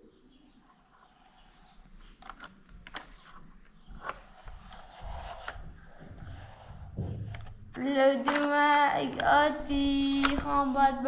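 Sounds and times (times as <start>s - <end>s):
soft rubbing and scraping: 0.4s - 2.2s, 2.8s - 7.8s
plastic toy clicks and knocks: 8.2s - 9.4s, 10.1s - 10.6s.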